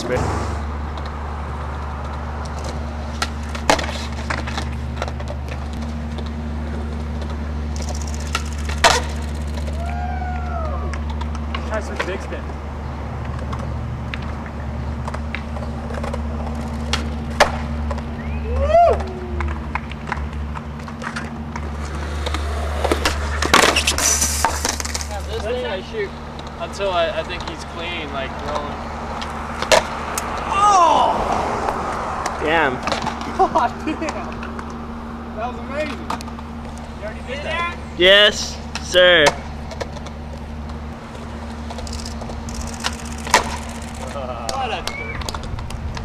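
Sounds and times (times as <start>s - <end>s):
steady low hum: 0.0s - 30.4s
skateboard deck clacks: 8.2s - 9.7s, 15.0s - 18.0s, 43.2s - 46.0s
skateboard clattering on concrete: 43.2s - 45.7s.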